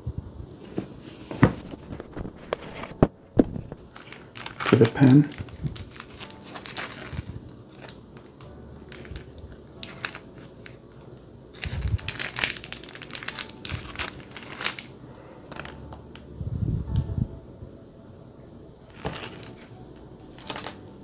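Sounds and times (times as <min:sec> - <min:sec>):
plastic sleeve crinkling: 0:01.2 - 0:16.3, 0:18.9 - 0:21.0.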